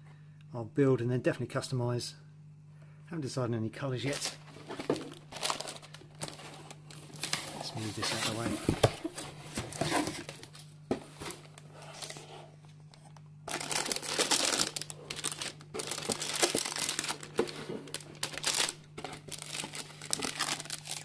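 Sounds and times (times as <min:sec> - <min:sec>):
plastic bags crinkling: 0:04.0 - 0:12.2, 0:13.4 - 0:21.0.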